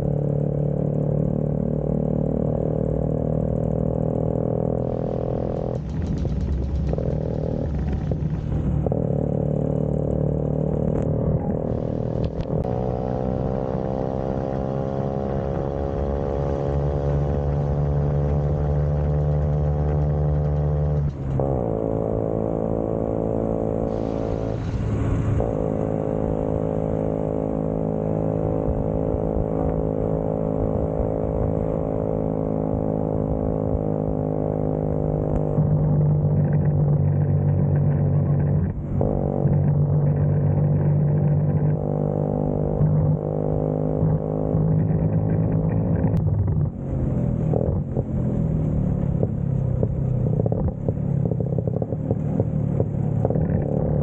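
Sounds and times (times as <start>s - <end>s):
scooter engine running: 4.0s - 21.4s.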